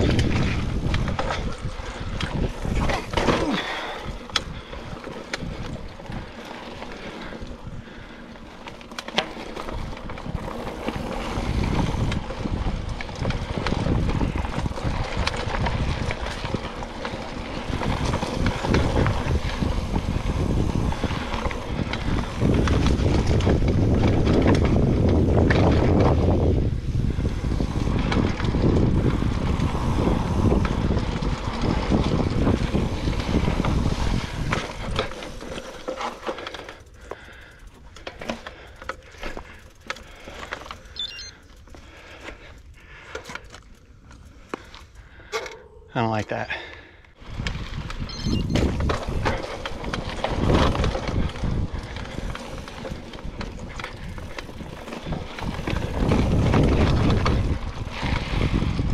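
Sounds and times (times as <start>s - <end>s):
wind on microphone: 0.0s - 4.7s, 9.8s - 35.2s, 47.2s - 58.9s
bike rattling over bumps: 0.0s - 58.9s
bike tyres on dirt: 0.0s - 58.9s.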